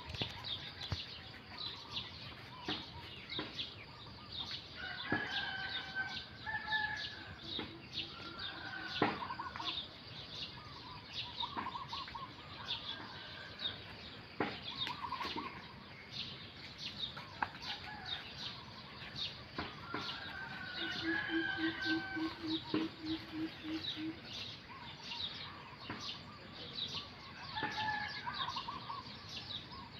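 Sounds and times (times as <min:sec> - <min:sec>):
birds chirping: 0:00.0 - 0:29.9
warbling bird calls: 0:08.0 - 0:13.4, 0:14.7 - 0:15.9, 0:18.7 - 0:29.9.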